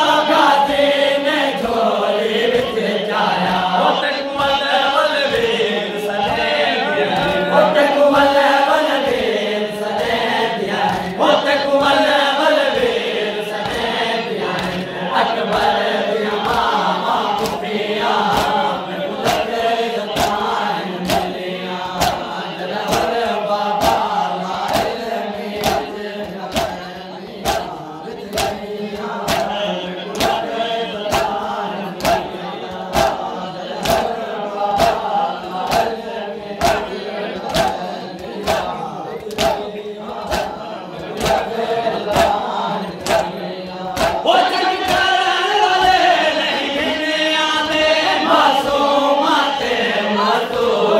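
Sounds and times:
men chanting in unison: 0.0s - 50.9s
palm slaps on chests: 14.5s - 14.9s, 16.4s - 17.7s, 18.3s - 30.5s, 31.1s - 33.2s, 33.8s - 40.6s, 41.2s - 43.3s, 43.9s - 44.2s.

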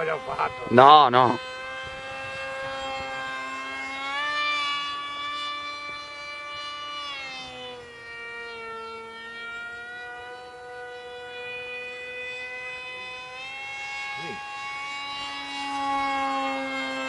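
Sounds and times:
model jet motor whine: 0.0s - 17.0s.

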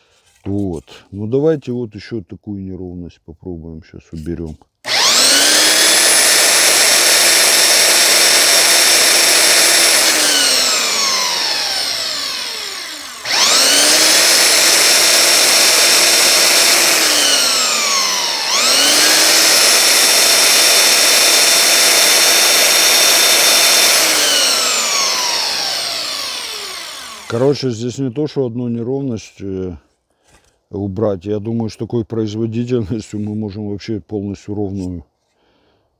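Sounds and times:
belt sander whining: 4.8s - 27.8s
motor coasting down: 4.9s - 27.6s.

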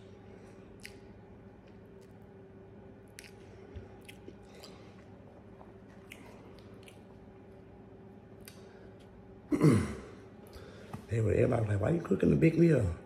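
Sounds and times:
person chewing food: 0.0s - 2.4s, 3.0s - 9.2s.

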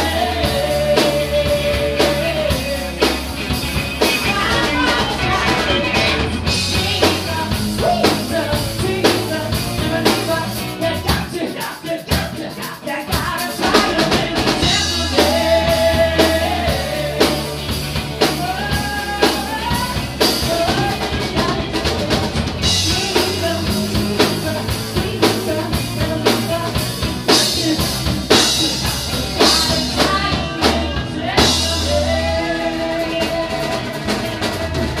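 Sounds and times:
live rock band playing: 0.0s - 35.0s
woman singing lead: 0.0s - 35.0s.

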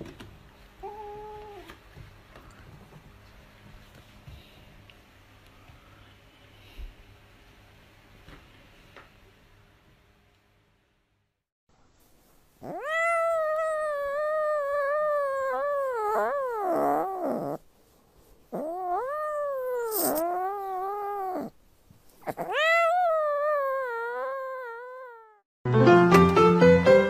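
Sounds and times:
cat meowing: 12.6s - 17.6s, 18.5s - 21.6s, 22.2s - 25.4s.

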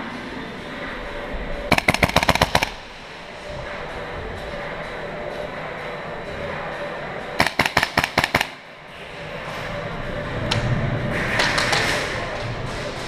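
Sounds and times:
large hall noise: 0.0s - 13.0s
airsoft gun shots: 1.7s - 2.8s, 7.4s - 8.6s.

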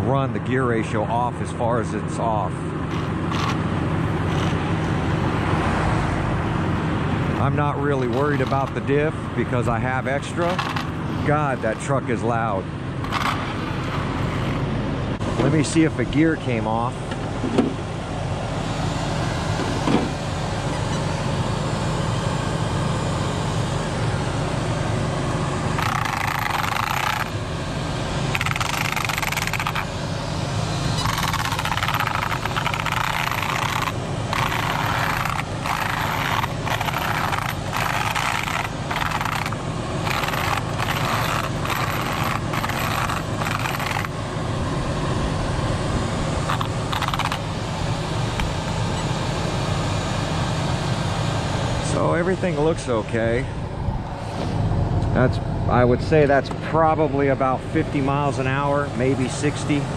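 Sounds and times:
truck engine idling: 0.0s - 59.9s
toy car handled on gravel: 25.8s - 27.3s, 28.3s - 29.9s, 31.0s - 44.1s, 46.5s - 47.4s.

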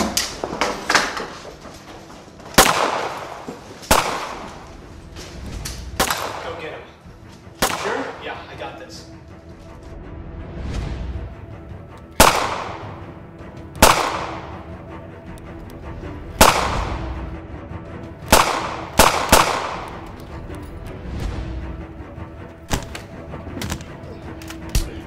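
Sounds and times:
background music score: 0.0s - 25.0s
pistol shots echoing: 2.6s - 4.6s, 6.0s - 6.8s, 7.6s - 8.3s, 12.2s - 13.1s, 13.8s - 14.6s, 16.4s - 17.0s, 18.3s - 20.0s.

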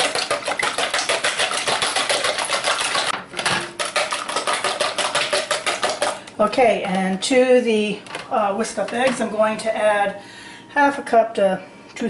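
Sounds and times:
whisk beating eggs in bowl: 0.0s - 6.3s.

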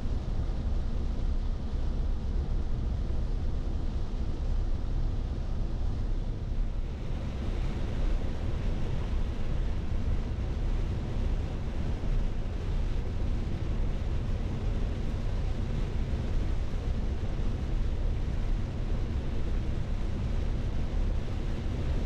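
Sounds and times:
wind buffeting the microphone: 0.0s - 22.0s.

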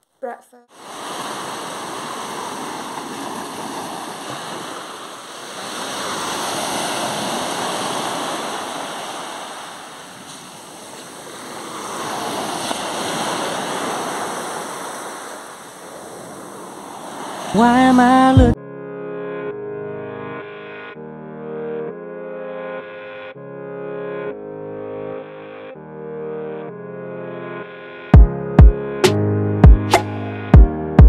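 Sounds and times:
waves washing on pebble beach: 0.8s - 17.6s.

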